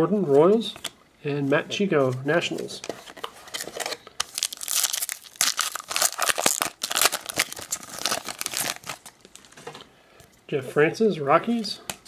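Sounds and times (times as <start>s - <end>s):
wrapper torn and crinkled: 3.6s - 9.4s.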